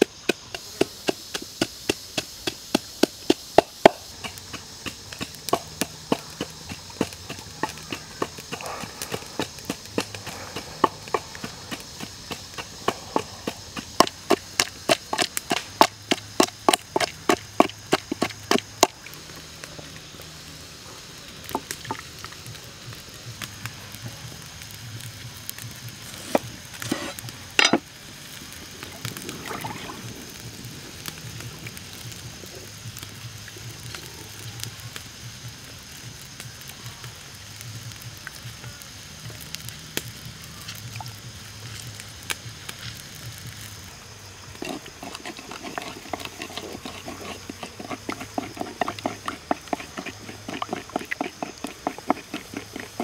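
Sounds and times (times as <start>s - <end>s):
wooden pestle pounding in mortar: 0.0s - 19.0s, 44.6s - 53.0s.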